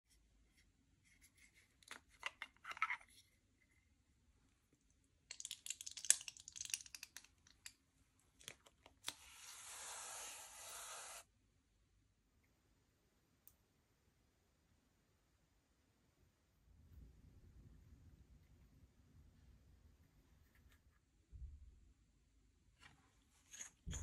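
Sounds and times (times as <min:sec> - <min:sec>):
hissing scrape: 0:09.2 - 0:11.2.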